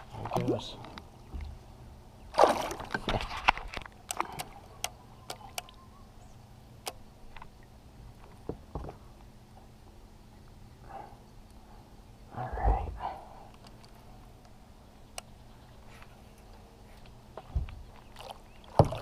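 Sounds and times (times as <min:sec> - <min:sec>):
sharp clicks: 0:04.0 - 0:05.8, 0:06.8 - 0:07.0.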